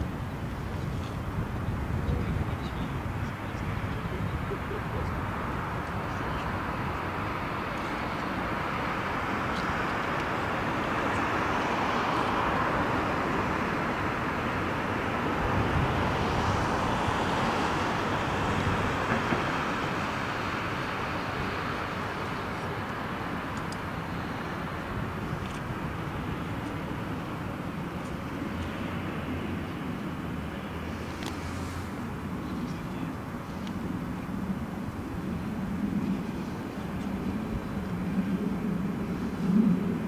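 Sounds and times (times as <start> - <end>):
jet engines roaring: 0.0 - 40.0.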